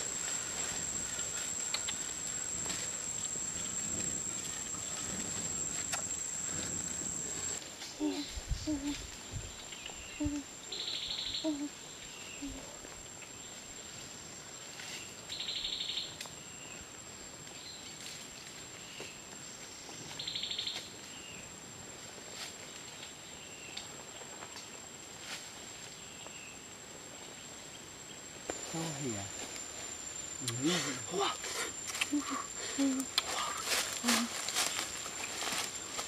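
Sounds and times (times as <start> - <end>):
insect high-pitched drone: 0.0 - 12.8, 28.5 - 36.0
pulsing insect trill: 0.0 - 16.1, 28.5 - 36.0
faint insect chirps: 0.0 - 36.0.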